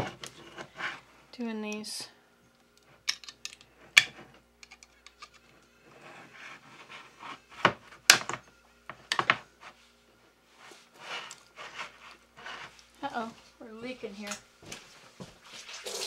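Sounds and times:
can opening clicks and clanks: 0:03.1 - 0:05.5
metal scraping: 0:03.7 - 0:08.4.

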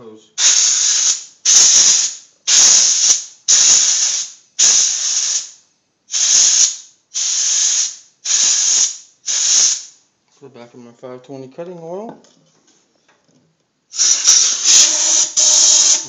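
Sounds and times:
compressed air blasts: 0:00.4 - 0:10.0, 0:13.9 - 0:16.0.

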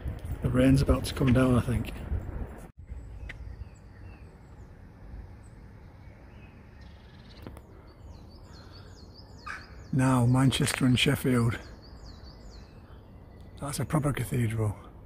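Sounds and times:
steady low rumble: 0:00.0 - 0:06.9
small birds chirping: 0:02.8 - 0:15.0.

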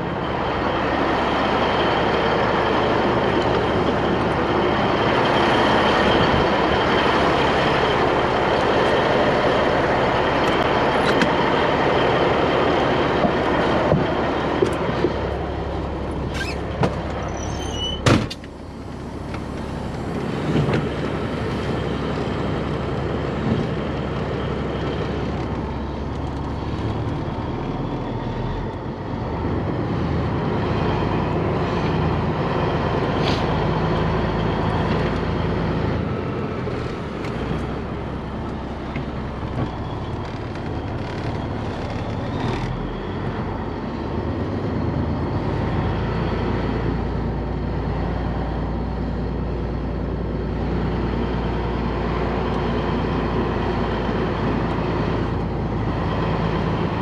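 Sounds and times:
diesel engine running: 0:00.0 - 0:57.0
cab door shutting: 0:16.3 - 0:20.9.

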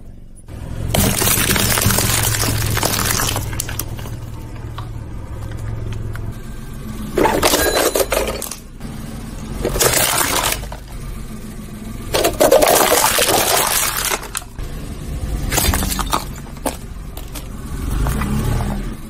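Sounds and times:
car rumble: 0:00.1 - 0:19.0
plastic toy cracking and crunching: 0:00.9 - 0:04.3, 0:09.6 - 0:10.9, 0:12.1 - 0:14.6.

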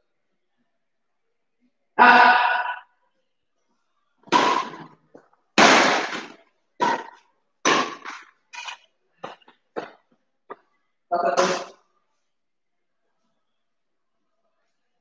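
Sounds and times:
racket hitting shuttlecock: 0:04.3 - 0:05.0, 0:05.6 - 0:08.3.

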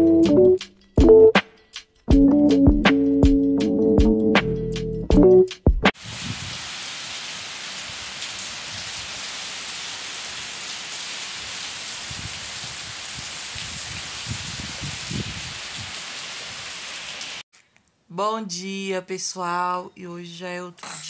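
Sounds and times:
loud music: 0:02.1 - 0:05.5
heavy rain: 0:06.0 - 0:17.4.

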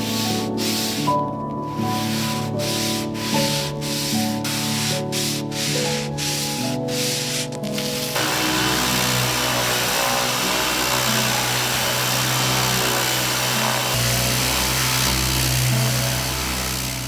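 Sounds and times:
orbital sander whirring: 0:07.9 - 0:17.0.

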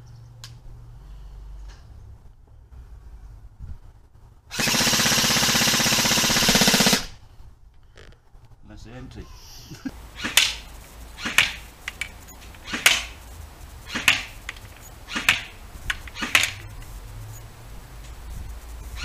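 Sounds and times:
airsoft rifle single shots: 0:10.2 - 0:13.2, 0:13.9 - 0:16.6.

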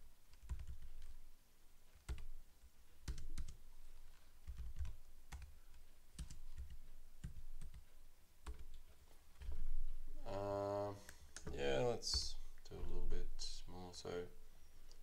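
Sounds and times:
computer keyboard typing: 0:00.3 - 0:01.2, 0:01.9 - 0:02.4, 0:03.0 - 0:03.6, 0:04.4 - 0:09.6.

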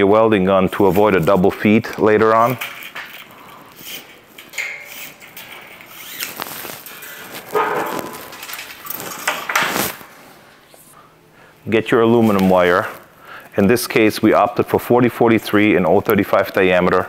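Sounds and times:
welding wire scraping and rattling: 0:00.7 - 0:10.4, 0:12.1 - 0:13.1
welding gun knocks and clatter: 0:02.3 - 0:10.0.

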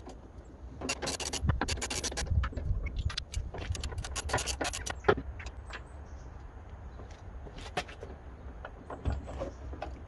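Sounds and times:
ratchet spanner clicking and scraping: 0:00.8 - 0:05.0.

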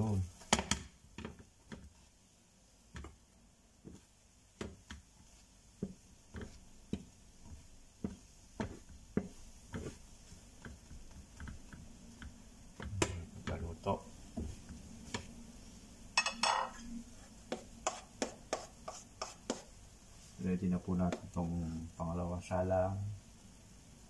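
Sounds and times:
plastic spatula tapping frying pan: 0:00.4 - 0:02.0, 0:02.9 - 0:03.2, 0:03.8 - 0:13.6, 0:14.3 - 0:15.3, 0:17.5 - 0:19.7.

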